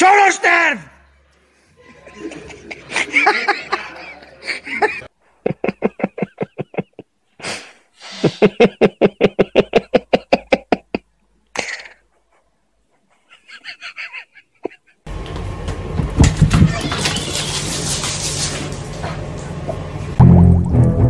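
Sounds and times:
rapid pulsing laughter: 1.8s - 7.0s, 8.2s - 11.0s, 11.8s - 15.1s.

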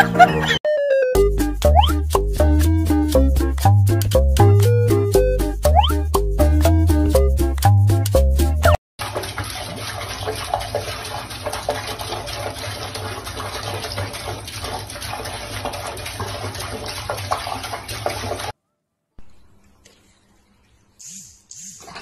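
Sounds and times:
tap water splashing into sink: 9.0s - 18.5s.

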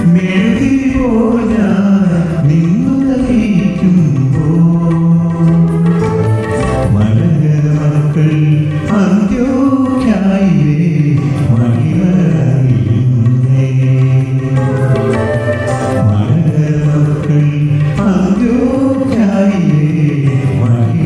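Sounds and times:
man singing slow melody: 0.0s - 15.2s, 15.8s - 21.0s
instrumental accompaniment: 0.0s - 21.0s.

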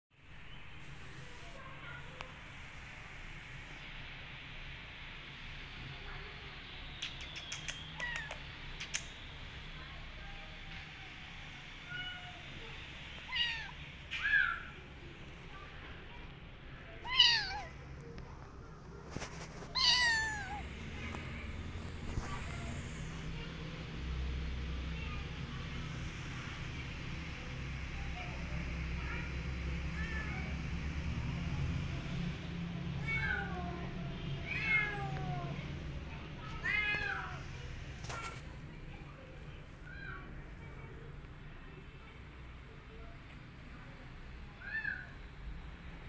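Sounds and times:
kitten meowing: 8.0s - 8.4s, 13.3s - 14.6s, 17.0s - 17.7s, 19.7s - 20.7s.

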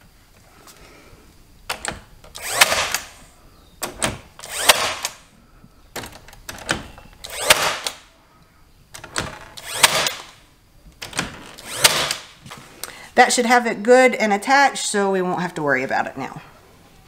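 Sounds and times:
brad nailer firing: 1.7s - 3.2s, 3.8s - 5.3s, 6.0s - 8.1s, 9.0s - 10.4s, 11.0s - 12.4s.

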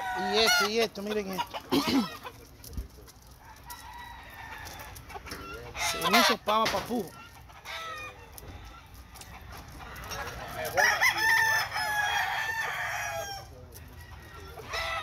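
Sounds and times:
rooster crowing: 0.0s - 0.8s, 3.4s - 5.0s, 9.8s - 15.0s.

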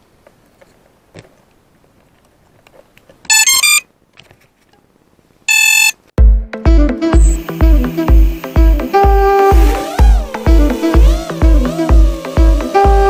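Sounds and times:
drone motor electronic beeps: 3.3s - 3.8s, 5.5s - 6.0s, 7.2s - 9.5s.

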